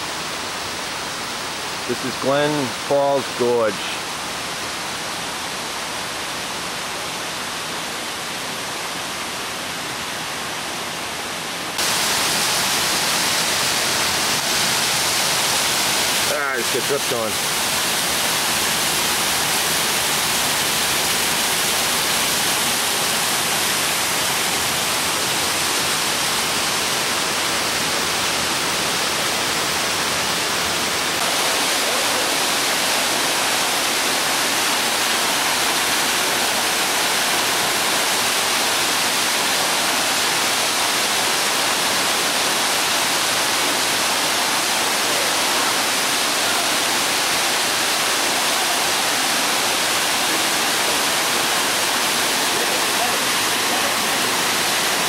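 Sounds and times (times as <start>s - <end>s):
waterfall splashing onto rock: 11.8s - 25.5s, 31.1s - 55.0s.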